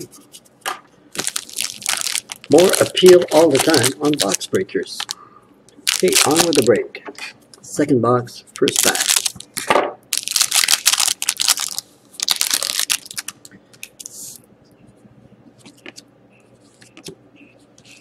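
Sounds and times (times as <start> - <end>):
foil wrapper crinkling: 1.2 - 5.2, 5.8 - 6.8, 8.6 - 13.4.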